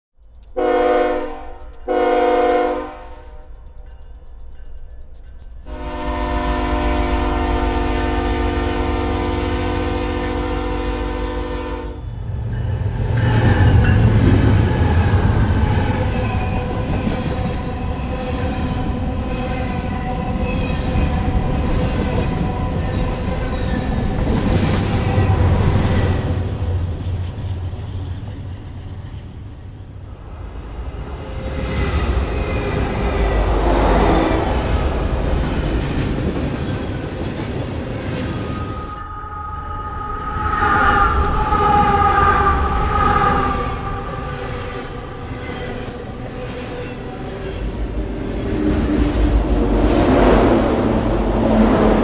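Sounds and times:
locomotive air horn blasts: 0:00.6 - 0:03.4, 0:05.7 - 0:12.0, 0:38.8 - 0:45.4.

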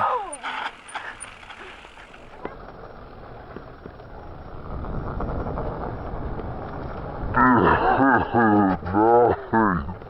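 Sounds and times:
bike tyres rolling over dirt: 0:00.0 - 0:10.0
wind noise on microphone: 0:04.1 - 0:08.0.

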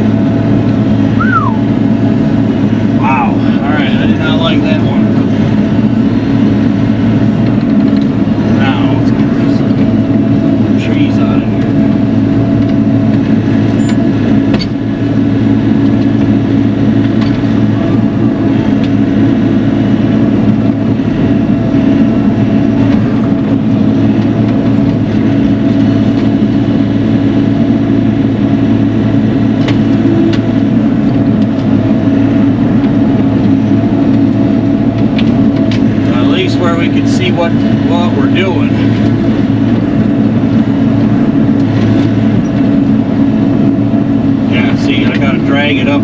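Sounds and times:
diesel engine running: 0:00.0 - 0:46.0.

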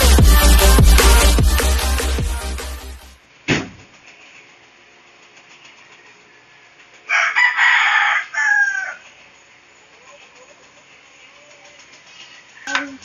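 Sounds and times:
music: 0:00.0 - 0:03.2
rooster crowing: 0:07.0 - 0:09.2.

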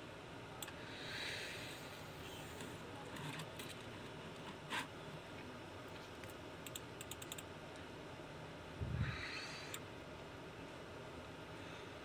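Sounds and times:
computer mouse clicking: 0:06.2 - 0:07.5.

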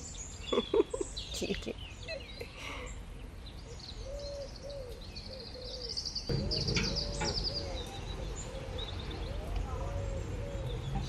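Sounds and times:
small birds twittering: 0:00.0 - 0:11.0
dove cooing: 0:04.0 - 0:11.0
low background rumble: 0:06.3 - 0:11.0.

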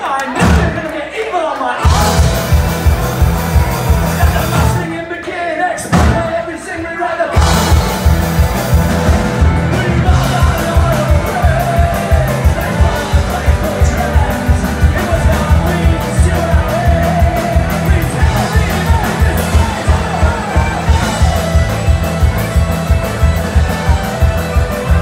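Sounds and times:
fast drum beat: 0:01.8 - 0:04.9, 0:07.4 - 0:25.0
bass and guitars: 0:01.8 - 0:25.0
fiddle melody: 0:01.9 - 0:04.8, 0:07.4 - 0:25.0.

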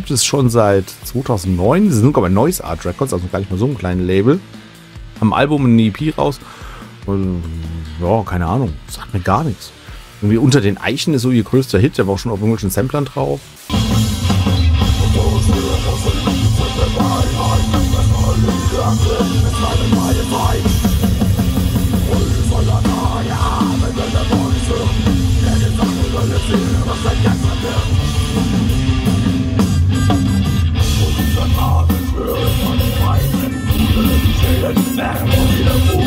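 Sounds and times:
bass guitar: 0:00.0 - 0:10.9, 0:12.7 - 0:36.0
drum kit: 0:00.0 - 0:36.0
electric guitars: 0:13.4 - 0:36.0.

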